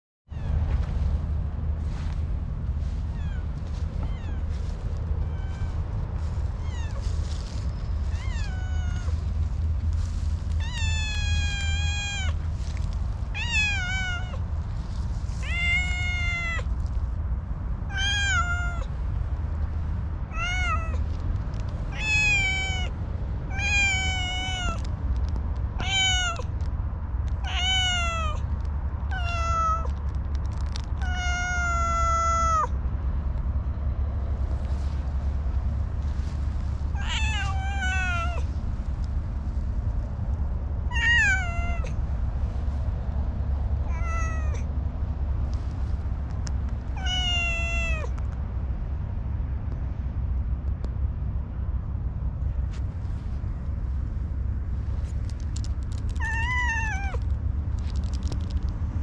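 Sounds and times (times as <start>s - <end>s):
cat meowing: 3.1s - 7.2s, 8.0s - 9.3s, 10.6s - 12.4s, 13.3s - 14.4s, 15.4s - 16.8s, 17.9s - 18.9s, 20.3s - 21.1s, 21.9s - 24.9s, 25.8s - 26.5s, 27.4s - 28.4s, 29.0s - 30.0s, 30.9s - 32.8s, 36.9s - 38.5s, 40.9s - 42.0s, 43.8s - 44.7s, 46.9s - 48.2s, 56.0s - 57.2s.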